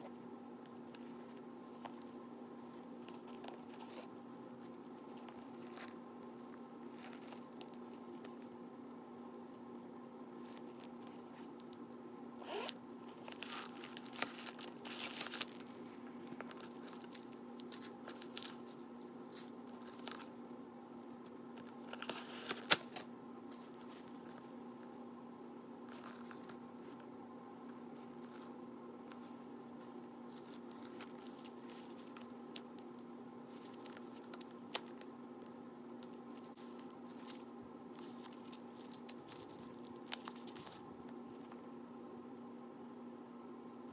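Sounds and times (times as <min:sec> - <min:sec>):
plastic wrapping crinkling: 0:02.9 - 0:08.4, 0:12.5 - 0:20.4, 0:21.6 - 0:24.4, 0:27.9 - 0:41.6
zipper being pulled: 0:12.4 - 0:12.8.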